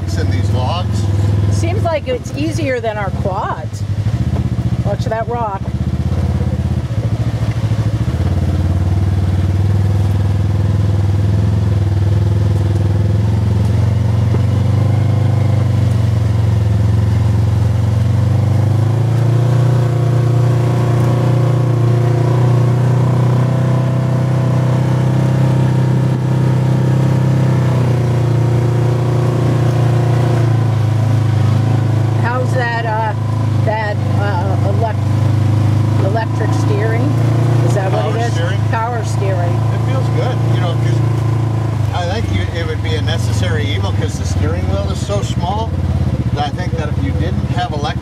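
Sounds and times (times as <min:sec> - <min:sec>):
vehicle engine running: 0:00.0 - 0:48.0.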